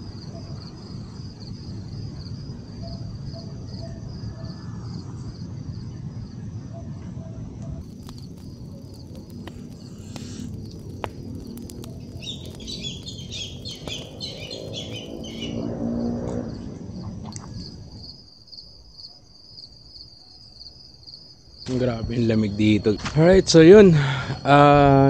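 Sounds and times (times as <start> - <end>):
crickets trilling: 0.0 - 7.0, 7.8 - 25.0
insects in trees: 0.0 - 7.0, 7.8 - 25.0
campfire crackling clicks: 7.8 - 15.4
birds chirping: 7.8 - 15.7.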